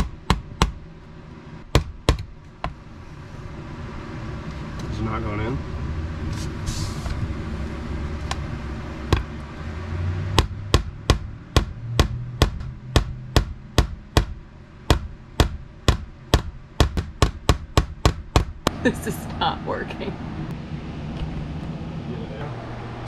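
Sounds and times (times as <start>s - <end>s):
hammer striking nail into wood: 0.0s - 0.8s, 1.7s - 2.8s, 10.4s - 18.7s.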